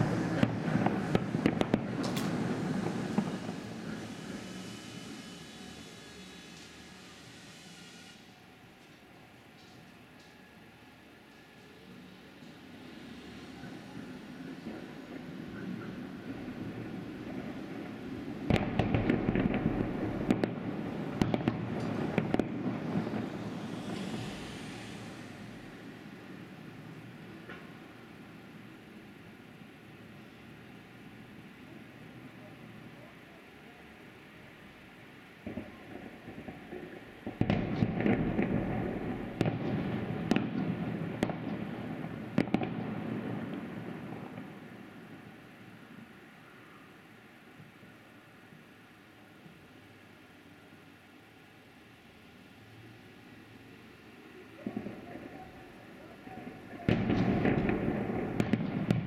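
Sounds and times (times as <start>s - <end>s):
fireworks bangs and crackles: 0.0s - 6.0s, 12.6s - 28.4s, 35.4s - 46.1s, 54.5s - 59.0s
fireworks rumble: 0.0s - 10.2s, 11.2s - 50.0s, 53.2s - 59.0s.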